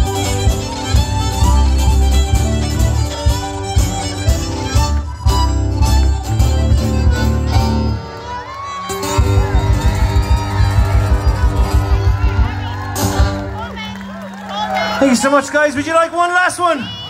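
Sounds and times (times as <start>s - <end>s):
fiddle accordion and guitar folk music: 0.0s - 15.8s
crowd clapping: 4.7s - 5.3s, 7.3s - 16.5s
crowd cheering and whooping: 8.0s - 15.8s.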